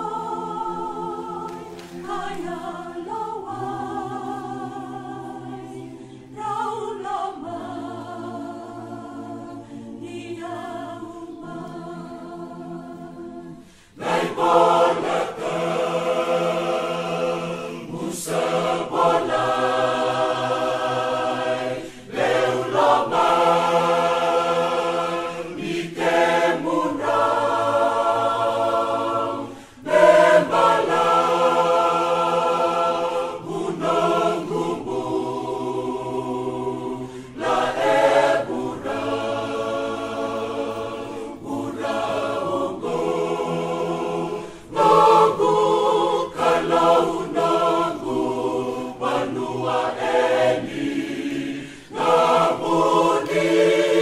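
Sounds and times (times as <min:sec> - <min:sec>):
choir singing a hymn: 0:00.0 - 0:54.0.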